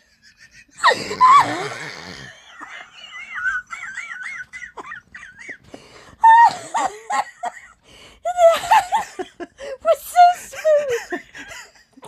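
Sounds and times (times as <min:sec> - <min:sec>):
high-pitched wheezing laugh: 0:00.0 - 0:05.4
people laughing: 0:02.4 - 0:09.6.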